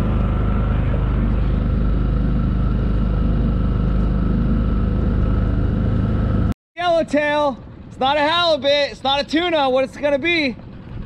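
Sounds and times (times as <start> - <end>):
outboard motor running: 0.0 - 6.6.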